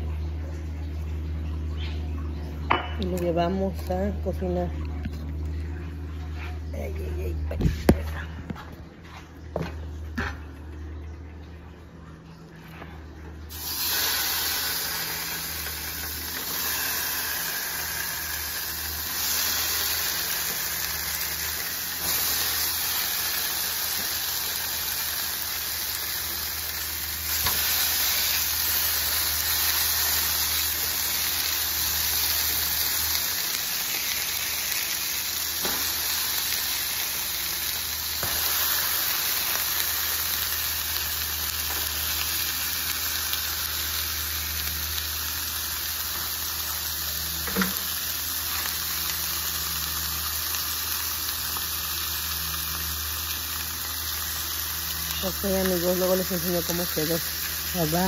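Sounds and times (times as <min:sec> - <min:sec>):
fish sizzling in a pan: 0:13.5 - 0:58.0.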